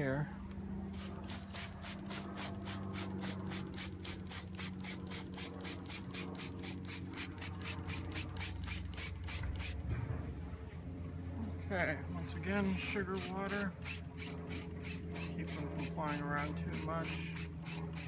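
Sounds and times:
steady low hum: 0.0 - 18.0
spray bottle squirting: 0.9 - 9.8, 13.1 - 18.0.

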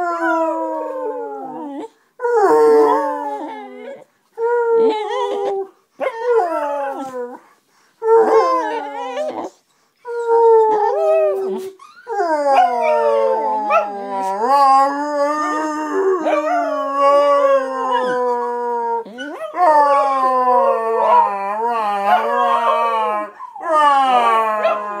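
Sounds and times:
dog howling: 10.6 - 25.0.

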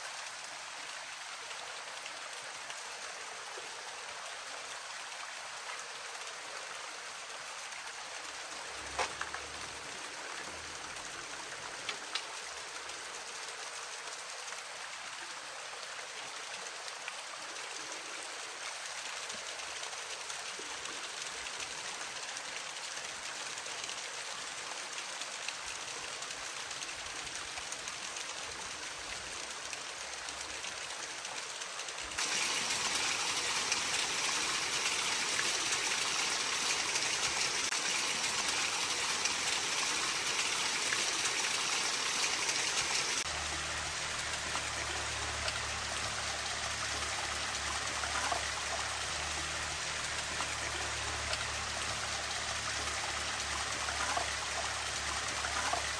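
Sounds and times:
stream water rushing: 16.6 - 55.9.

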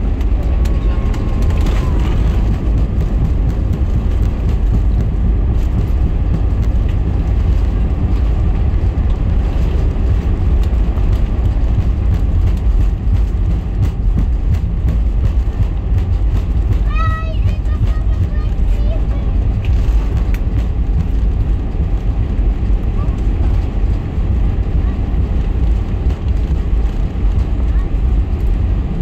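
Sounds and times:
aircraft cabin rumble: 0.0 - 29.0.

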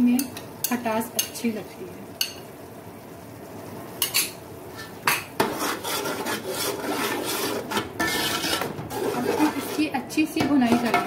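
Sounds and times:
spoon scraping and clattering in pot: 4.0 - 11.0.

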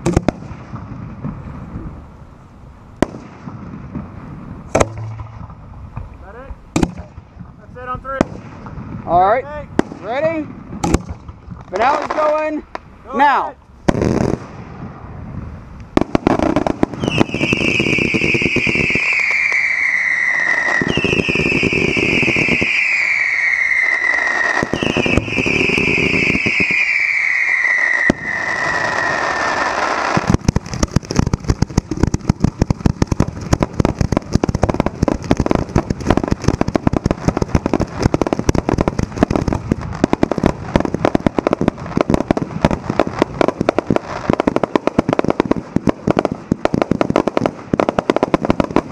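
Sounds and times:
firework launches and bursts: 0.0 - 2.2, 3.0 - 13.0, 13.8 - 48.9
firework crackle: 0.0 - 48.9
falling firework whistles: 16.0 - 33.0.

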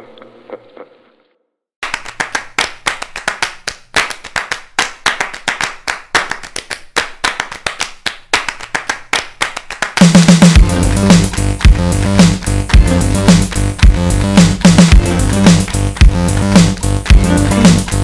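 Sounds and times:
hand clapping: 1.8 - 18.0
electronic music with heavy bass: 10.0 - 18.0.

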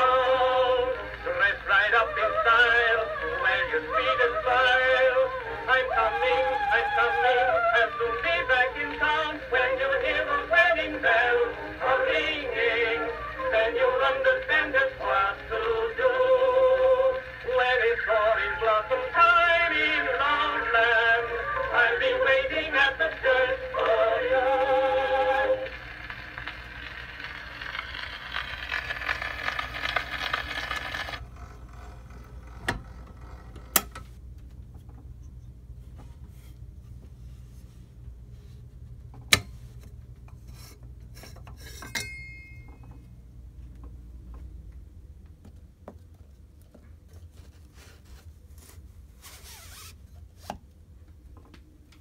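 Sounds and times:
phonograph reproducer hiss: 0.0 - 31.2, 35.0 - 41.8
recorded song on phonograph: 0.0 - 34.0.

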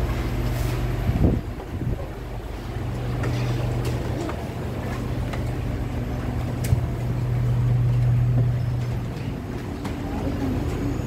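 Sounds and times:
train car interior hum: 0.0 - 11.0.

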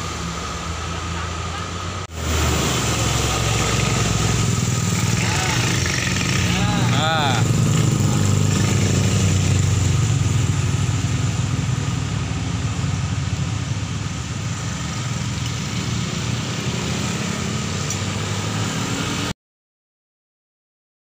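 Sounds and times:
tyre hiss on wet road: 0.0 - 7.4
car and motorcycle engines passing: 0.0 - 19.4.

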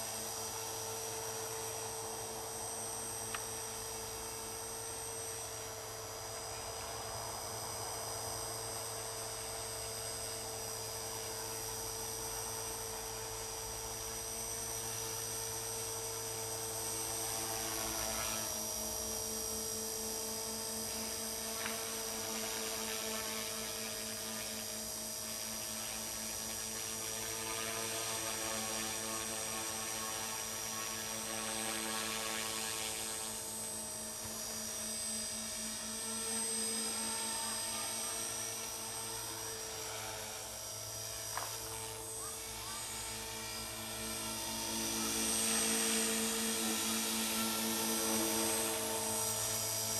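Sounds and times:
rc helicopter motor whine: 0.0 - 49.9
rotor buzz: 25.4 - 49.9.

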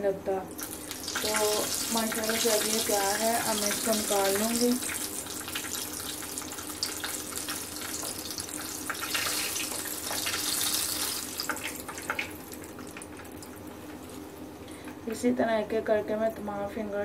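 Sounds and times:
hot oil sizzling and crackling: 0.5 - 14.6.

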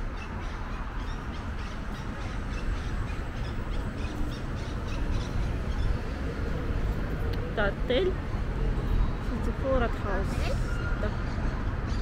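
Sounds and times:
birds calling: 0.0 - 8.2.

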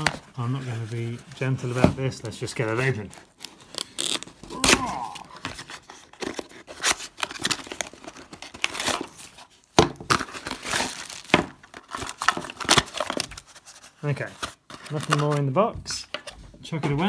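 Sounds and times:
cardboard ripping and rustling: 1.5 - 15.3
plastic packaging crinkling: 10.0 - 13.8.

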